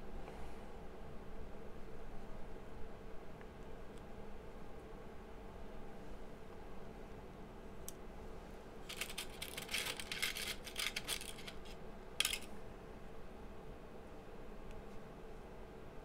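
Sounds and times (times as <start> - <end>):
space heater fan hum: 0.0 - 16.0
diodes rattling in plastic tray: 8.8 - 12.5.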